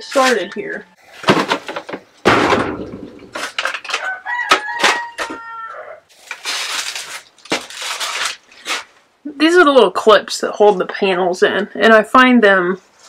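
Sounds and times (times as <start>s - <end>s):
rustling and clatter of handling: 3.1s - 5.1s
rooster crowing: 4.0s - 6.0s.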